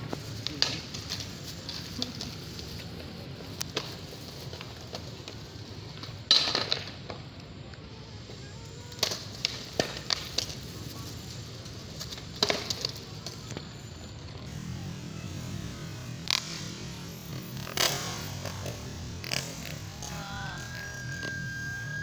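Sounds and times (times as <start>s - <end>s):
skateboards clacking on concrete: 0.0s - 7.5s, 8.8s - 13.8s
steady low rumble: 14.4s - 22.0s.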